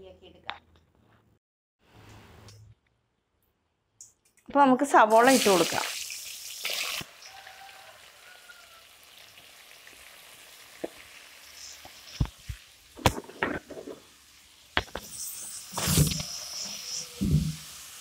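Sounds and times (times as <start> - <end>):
onions sizzling in hot oil: 5.1 - 18.0.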